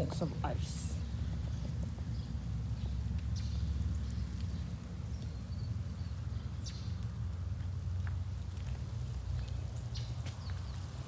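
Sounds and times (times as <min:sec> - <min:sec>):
ice crackling: 0:07.0 - 0:11.0.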